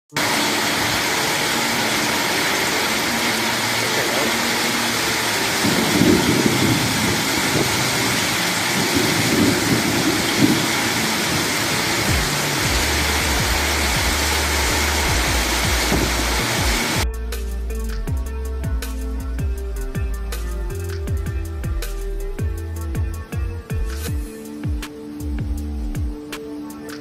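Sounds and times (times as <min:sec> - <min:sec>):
torrential rain: 0:00.1 - 0:17.0
storm wind gusting: 0:05.4 - 0:17.0.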